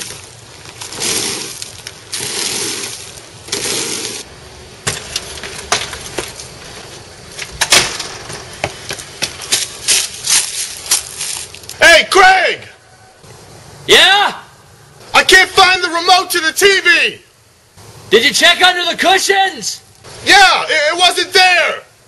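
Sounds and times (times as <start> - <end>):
hissing scraping strokes: 0.0 - 4.3.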